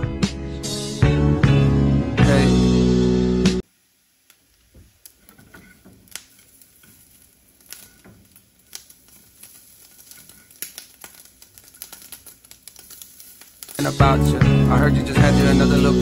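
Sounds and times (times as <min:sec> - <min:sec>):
quiet hiss: 0:03.6 - 0:16.0.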